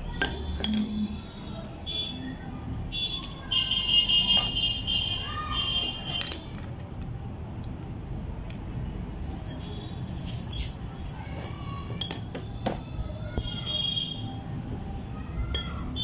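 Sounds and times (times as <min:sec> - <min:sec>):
metal clinks and knocks: 0:00.1 - 0:01.4, 0:10.4 - 0:12.6, 0:14.8 - 0:16.0.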